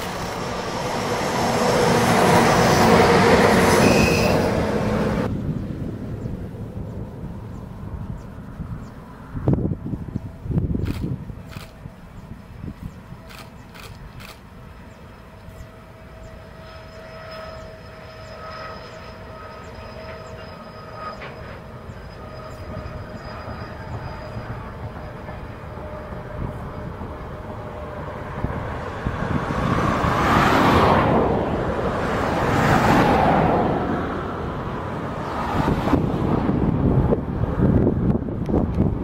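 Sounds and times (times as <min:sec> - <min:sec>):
freight train rolling on rails: 0:00.0 - 0:39.0.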